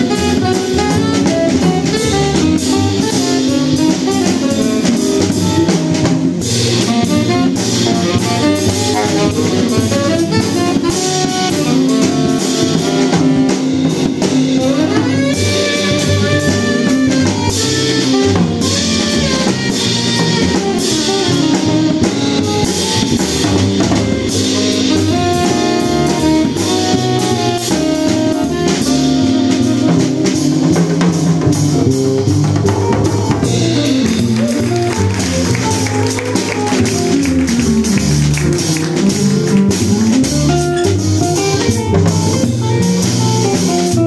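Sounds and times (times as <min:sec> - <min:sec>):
double bass: 0:00.0 - 0:44.0
drum kit with cymbals: 0:00.0 - 0:44.0
tenor saxophone: 0:00.0 - 0:44.0
guitar: 0:28.5 - 0:44.0.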